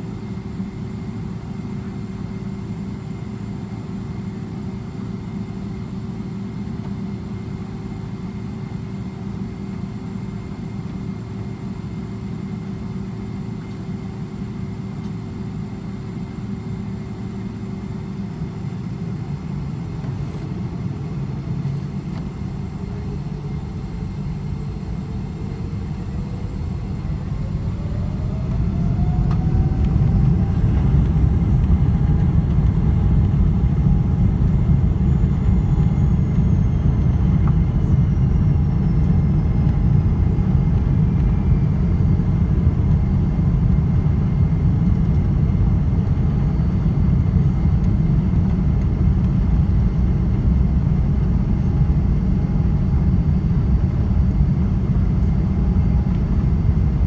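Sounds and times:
engine rising whine: 22.1s - 57.0s
jet engines spooling up: 24.1s - 57.0s.

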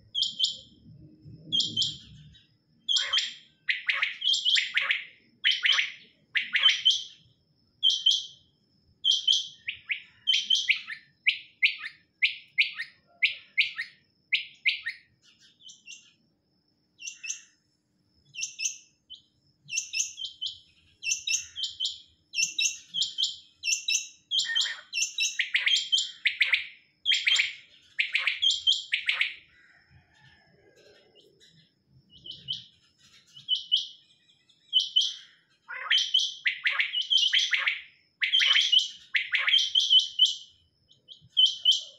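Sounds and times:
quails calling: 24.4s - 29.8s, 34.8s - 40.3s.

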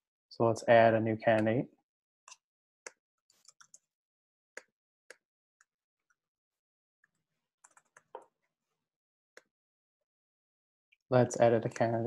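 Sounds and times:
computer keyboard typing: 7.6s - 8.0s.

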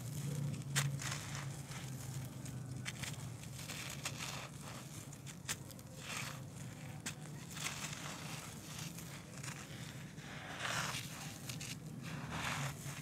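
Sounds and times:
hands crumbling dry earth: 0.0s - 13.0s.

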